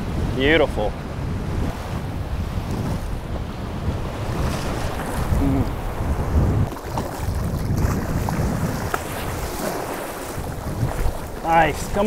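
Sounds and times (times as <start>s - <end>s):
surf washing through shallows: 0.0s - 12.0s
wind on microphone: 0.0s - 12.0s
fish splashing: 6.7s - 11.5s.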